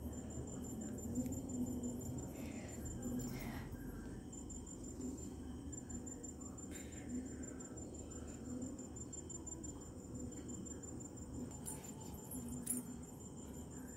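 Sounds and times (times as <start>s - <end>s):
cricket chirping: 0.0s - 13.9s
low background hum: 0.0s - 13.9s.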